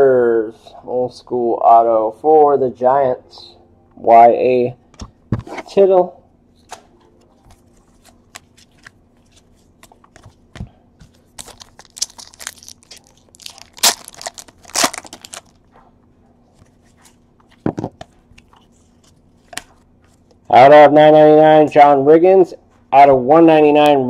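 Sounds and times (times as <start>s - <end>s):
trading cards shuffling: 6.6s - 15.6s
foil pack tearing and crinkling: 11.4s - 15.6s.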